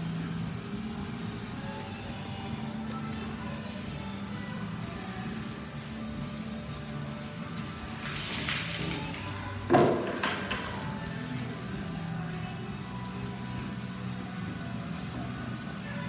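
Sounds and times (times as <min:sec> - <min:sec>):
background music: 0:00.0 - 0:16.0
water splashing over steel panel: 0:07.9 - 0:11.2
knocks on metal panel: 0:09.7 - 0:10.8.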